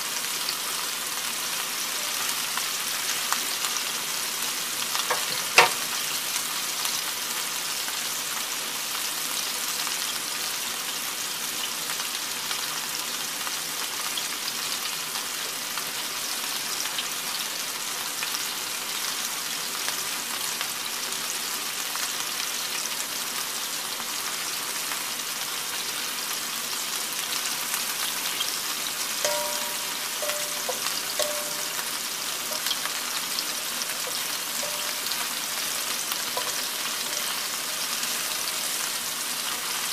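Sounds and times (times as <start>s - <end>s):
meatballs sizzling in hot oil: 0.0s - 39.9s
wooden spatula scraping skillet: 5.1s - 5.9s, 32.4s - 38.9s.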